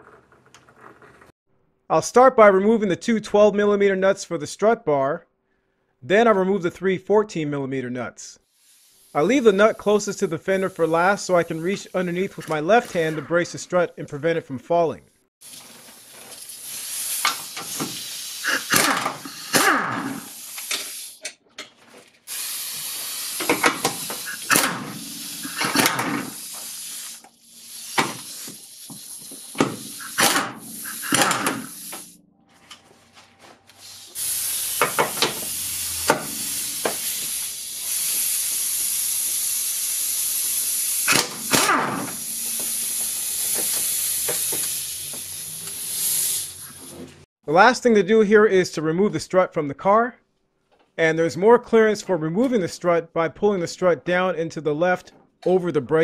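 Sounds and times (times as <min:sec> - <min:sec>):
steady hiss: 0:08.5 - 0:13.2, 0:15.4 - 0:19.6, 0:20.2 - 0:21.2, 0:22.3 - 0:32.2, 0:33.8 - 0:47.3.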